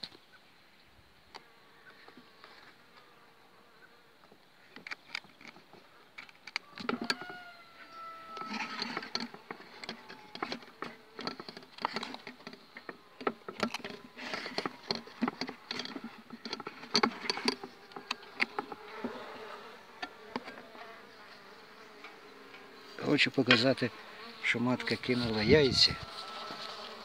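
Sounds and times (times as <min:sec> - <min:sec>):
bees buzzing: 0:05.5 - 0:27.0.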